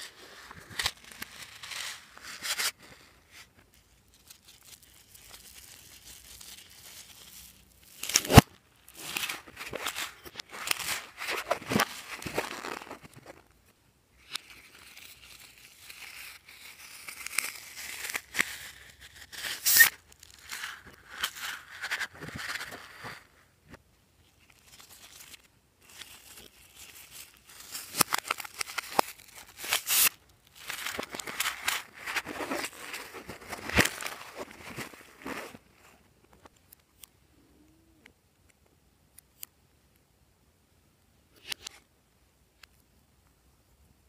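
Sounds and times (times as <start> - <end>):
rubber balloons squeezed and stretched: 6.2 - 13.5.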